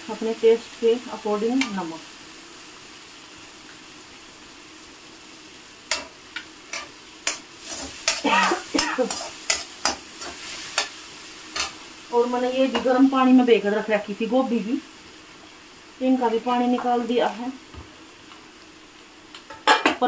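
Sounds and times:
food sizzling in oil: 0.0 - 20.0
metal spatula scraping a pan: 5.9 - 11.8.

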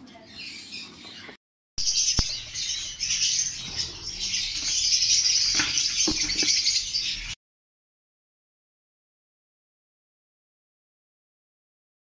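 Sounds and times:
lovebirds chattering: 0.0 - 7.4.

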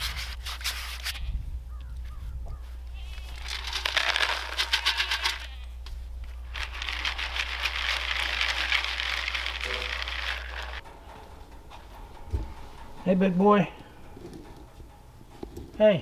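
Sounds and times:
kibble rattling into plastic bowl: 3.4 - 5.6, 6.5 - 10.8.

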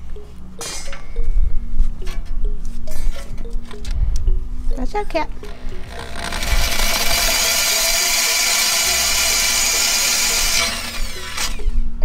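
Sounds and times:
electric drill boring: 5.4 - 11.9.

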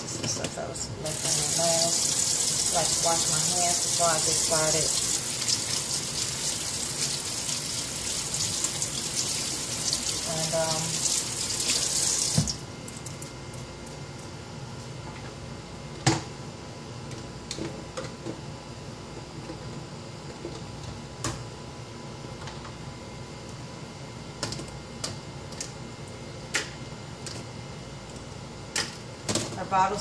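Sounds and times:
kitchen tap running: 1.0 - 12.6.

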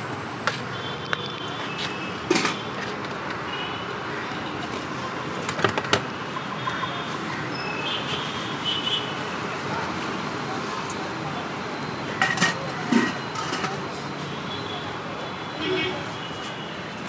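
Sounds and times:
street background: 0.0 - 17.0
steel plate scraping metal pot: 12.2 - 13.8.

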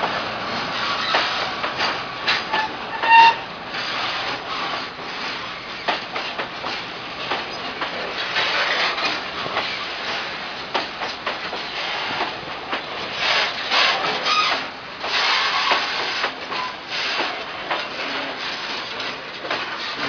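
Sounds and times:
train wheels on rails: 0.0 - 20.0
wheels squealing: 0.8 - 6.0, 13.2 - 17.4.

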